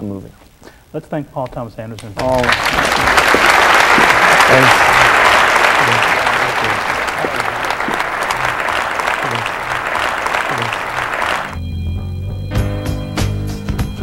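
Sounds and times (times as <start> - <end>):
audience applauding: 2.2 - 11.6.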